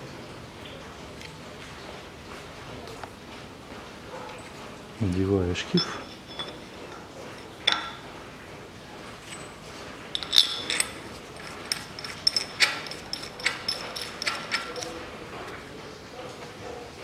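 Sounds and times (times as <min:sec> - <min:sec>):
light metallic clicks and clinks: 0:05.6 - 0:08.2, 0:09.2 - 0:15.2.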